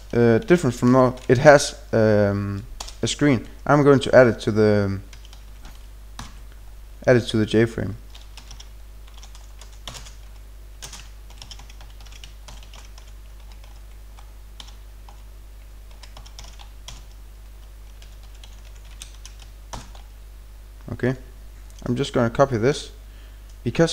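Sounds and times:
steady low hum: 0.0 - 23.9
typing on computer keyboard: 5.1 - 6.4, 8.1 - 15.2, 15.9 - 17.2, 17.9 - 20.1.

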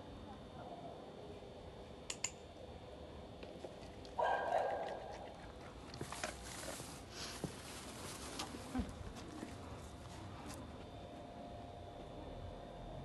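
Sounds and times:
dog barking: 4.2 - 5.3
rustling: 5.9 - 9.5.

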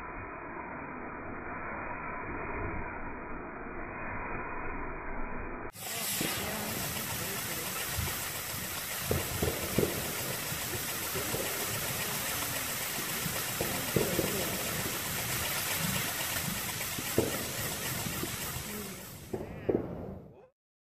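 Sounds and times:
firework wheel hissing: 5.7 - 20.5.

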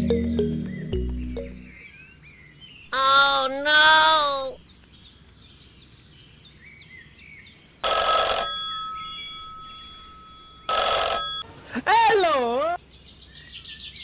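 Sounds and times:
telephone bell ringing: 7.8 - 11.5.

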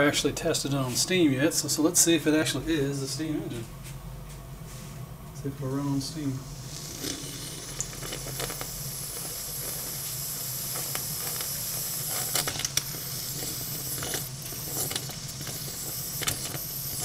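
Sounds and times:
steam hissing from engine: 6.4 - 17.0.

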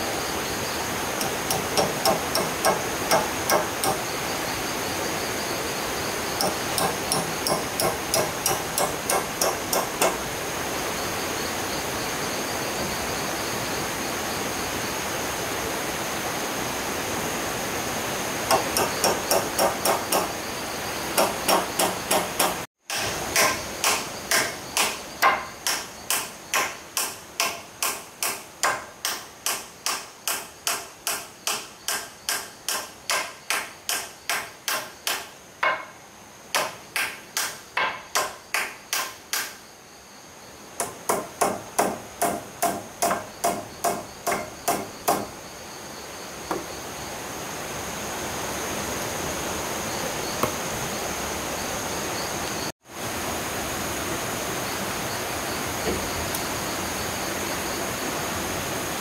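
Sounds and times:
high-pitched insect whine: 0.0 - 28.9, 29.5 - 59.0
hammer striking: 1.2 - 4.0, 6.4 - 10.2, 18.5 - 20.3, 21.2 - 36.0, 36.6 - 39.6, 40.8 - 45.3.

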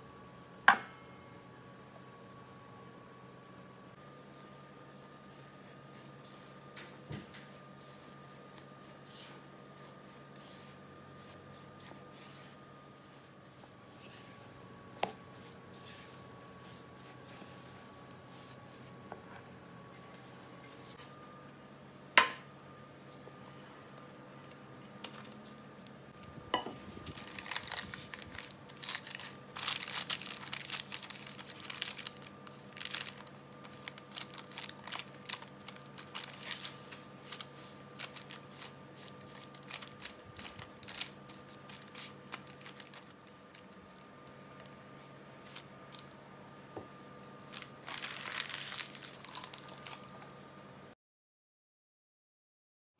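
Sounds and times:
baking paper crinkling: 4.4 - 19.0, 23.8 - 25.8, 26.9 - 46.1, 47.4 - 50.2.

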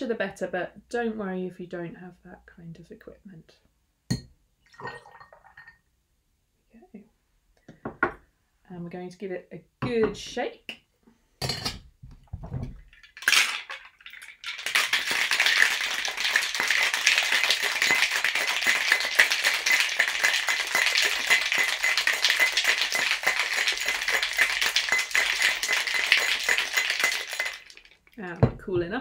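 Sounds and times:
ice rattling in a shaker: 12.8 - 28.5.

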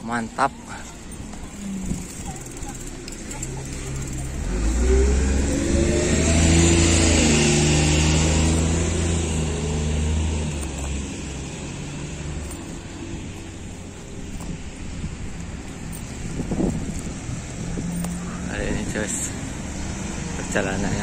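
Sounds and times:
vehicle driving past: 1.6 - 13.3.

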